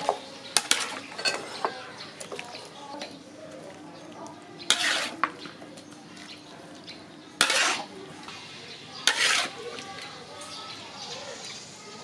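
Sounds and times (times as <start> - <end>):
metal spoon scraping a pan: 0.0 - 1.8, 4.6 - 5.4, 7.4 - 10.1.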